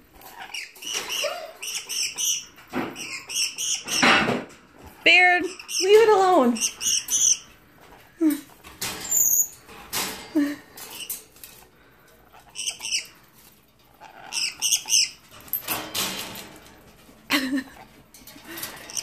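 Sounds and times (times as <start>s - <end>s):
high-pitched bird squeaks: 0.2s - 4.1s, 5.4s - 7.5s, 9.1s - 9.6s, 12.4s - 13.2s, 14.0s - 15.2s
knocks and rattles on cage bars: 2.6s - 3.2s, 3.8s - 4.7s, 8.6s - 10.9s, 15.2s - 17.3s.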